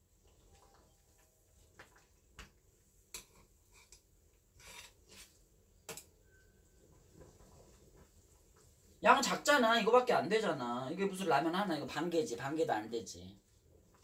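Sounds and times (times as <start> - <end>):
soft rustle: 6.5 - 9.0.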